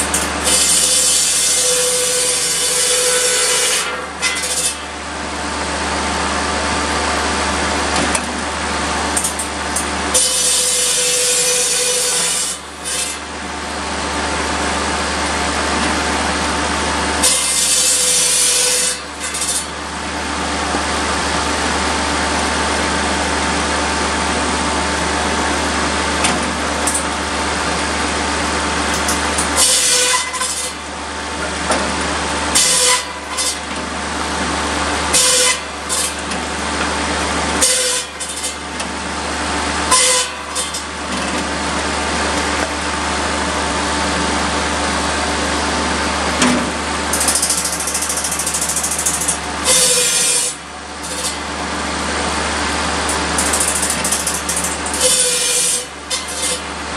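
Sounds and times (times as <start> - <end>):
circular saw cutting wood: 0.0 - 5.1, 9.2 - 13.3, 16.4 - 19.9, 28.8 - 31.7, 32.5 - 33.7, 34.9 - 36.6, 37.2 - 38.7, 39.8 - 41.0, 47.0 - 56.9
diesel engine running: 4.8 - 10.8, 12.4 - 56.9.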